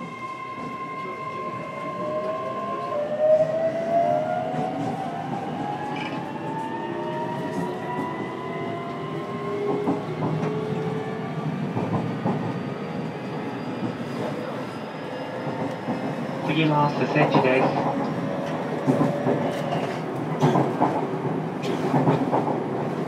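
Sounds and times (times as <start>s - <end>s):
train running rumble: 15.5s - 23.0s.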